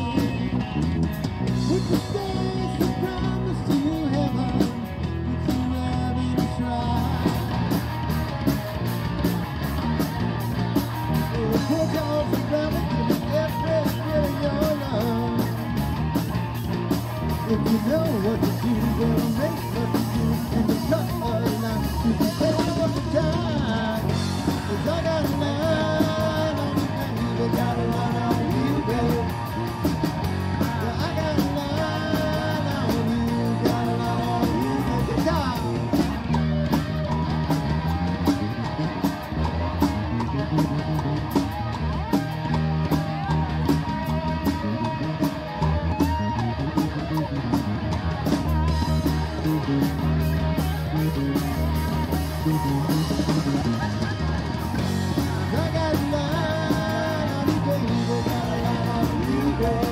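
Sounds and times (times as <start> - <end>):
bass guitar: 0.0 - 59.9
drum kit beat: 0.0 - 59.9
electric guitars: 0.0 - 59.9.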